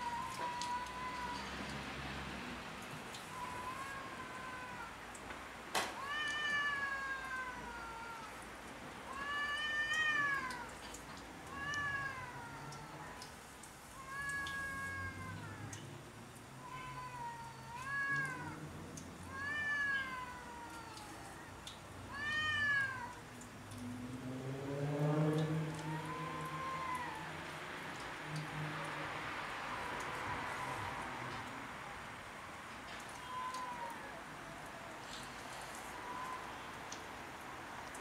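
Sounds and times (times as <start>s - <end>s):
cats yowling: 0.0s - 1.8s, 3.2s - 5.2s, 6.0s - 8.5s, 9.1s - 15.9s, 16.5s - 23.4s, 25.4s - 31.7s, 33.0s - 36.7s.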